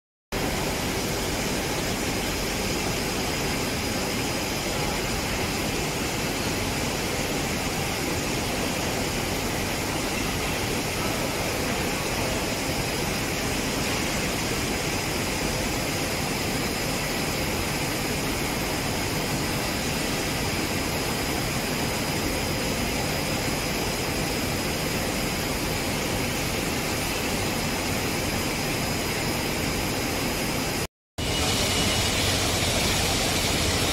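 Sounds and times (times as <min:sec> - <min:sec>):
machinery roar: 0:31.2 - 0:33.9.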